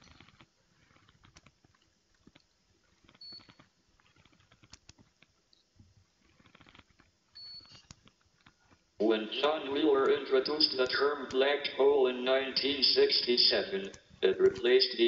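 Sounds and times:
faint clicks and rustles: 0:00.0 - 0:09.0.

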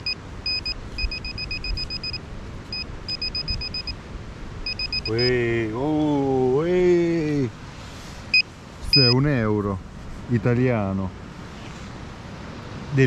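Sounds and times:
metal detector pinpointer beeping: 0:00.0 - 0:04.0, 0:04.6 - 0:05.4, 0:08.3 - 0:09.2
man speaking: 0:05.1 - 0:07.5, 0:09.0 - 0:11.1.

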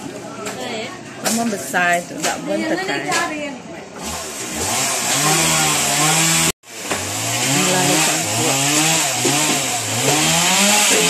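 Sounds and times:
small petrol engine revving: 0:04.0 - 0:11.0.

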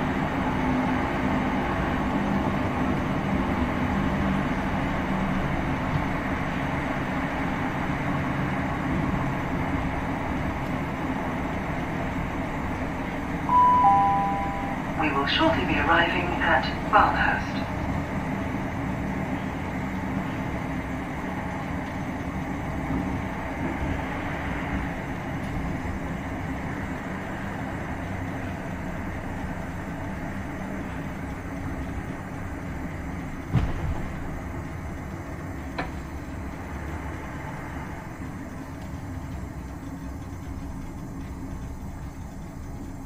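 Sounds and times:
train cabin running rumble: 0:00.0 - 0:43.0
sharp thump: 0:33.5 - 0:34.0.

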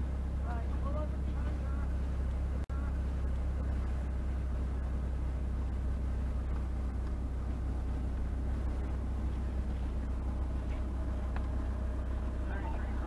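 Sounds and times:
car engine rumble inside cabin: 0:00.0 - 0:13.0.

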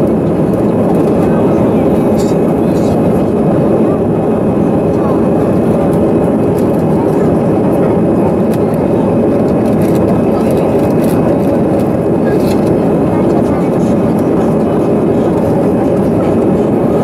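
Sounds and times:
jet engine roar in cabin: 0:00.0 - 0:17.0.

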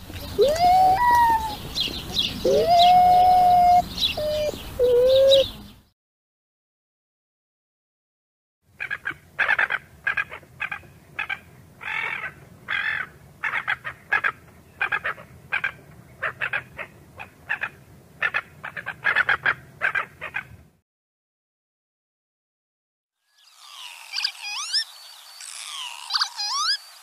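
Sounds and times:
gull calling: 0:00.3 - 0:05.5, 0:23.7 - 0:24.8, 0:25.4 - 0:26.8.

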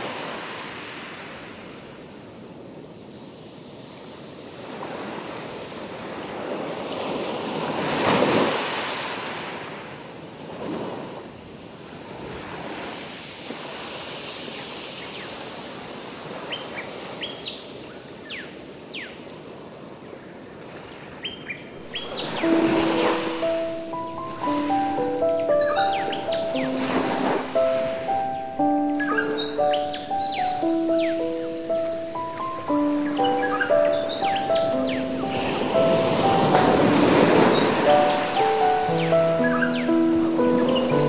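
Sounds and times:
sea waves washing on shore: 0:00.0 - 0:16.9, 0:21.8 - 0:41.0
high bird chirps: 0:21.7 - 0:41.0.

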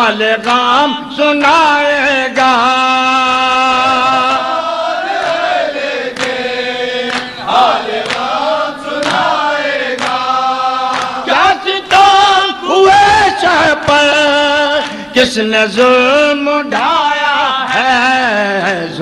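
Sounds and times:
men chanting melodically: 0:00.0 - 0:19.0
chest-beating slaps: 0:07.0 - 0:08.4, 0:09.0 - 0:11.2.

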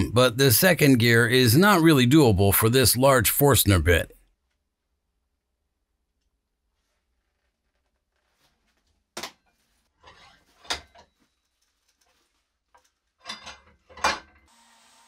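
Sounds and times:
soft rustling: 0:06.5 - 0:13.2
metal tools clicking and clunking: 0:12.8 - 0:14.4.

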